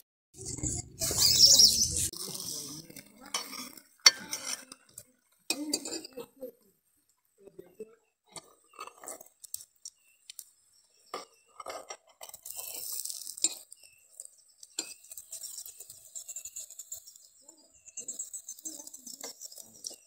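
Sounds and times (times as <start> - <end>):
metal spoon clinking on cup and pan: 12.0 - 13.9, 14.7 - 15.8.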